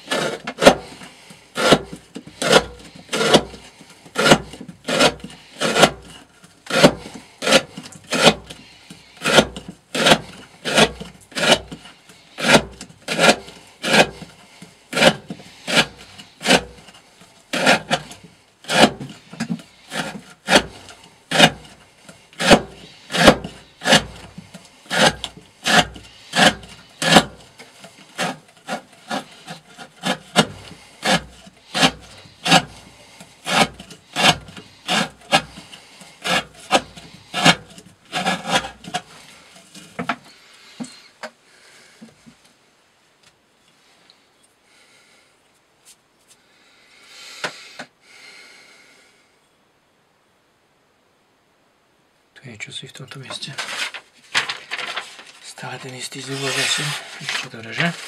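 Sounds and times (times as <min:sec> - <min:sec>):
knife blade carving wood: 0:00.0 - 0:40.2.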